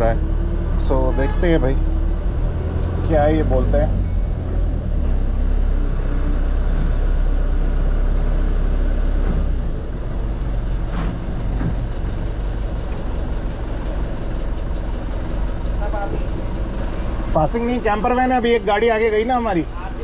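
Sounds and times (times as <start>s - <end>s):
truck engine droning: 0.0s - 20.0s.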